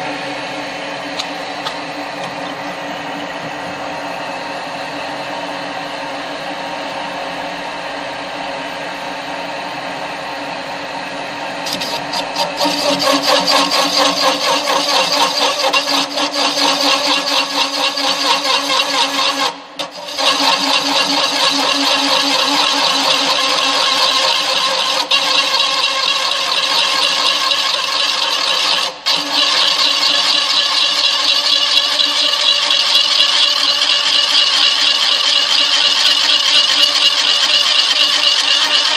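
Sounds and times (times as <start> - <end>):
pillar drill running: 11.4 - 38.9
cutter scraping sheet metal: 11.6 - 38.9.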